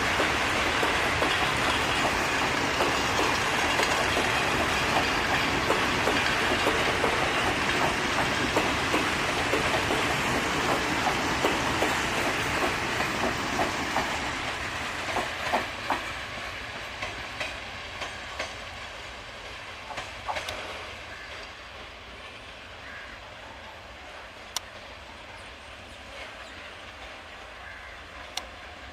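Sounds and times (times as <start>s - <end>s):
train wheels clacking on rails: 0.0s - 22.0s
train rumble: 0.0s - 28.9s.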